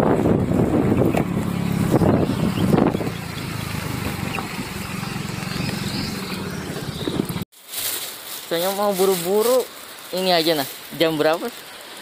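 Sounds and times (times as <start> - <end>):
motorcycle engine running: 0.1 - 7.4.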